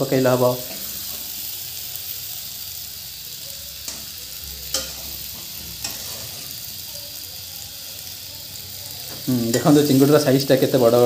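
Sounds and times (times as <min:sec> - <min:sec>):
prawns sizzling in oil: 0:00.0 - 0:11.0.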